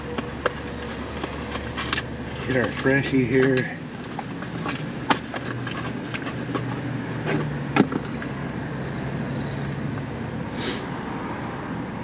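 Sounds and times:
packaging handling noise: 0.0s - 8.3s.

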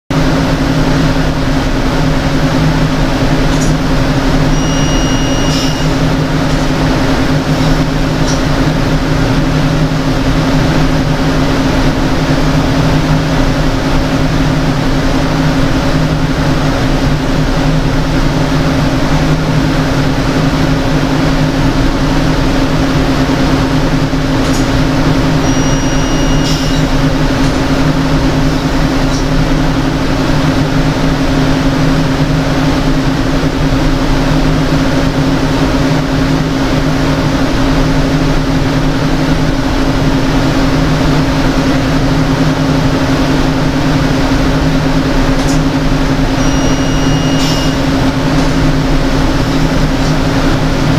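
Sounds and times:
machine hum with low tones: 0.1s - 50.9s
faint short high tone: 4.5s - 6.0s, 25.4s - 27.0s, 46.4s - 47.8s.

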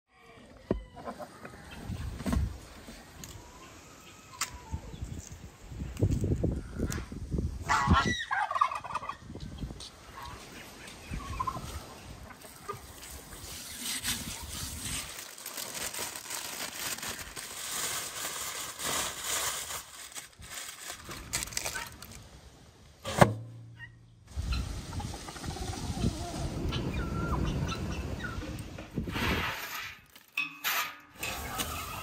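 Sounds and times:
faint yard noise: 0.1s - 29.0s
chicken warbling call: 7.6s - 9.2s.

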